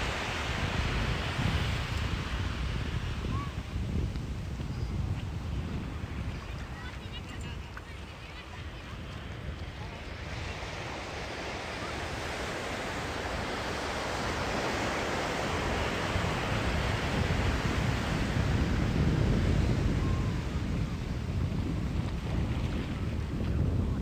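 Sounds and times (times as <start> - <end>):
ocean surf breaking: 0.0 - 3.8, 7.8 - 23.8.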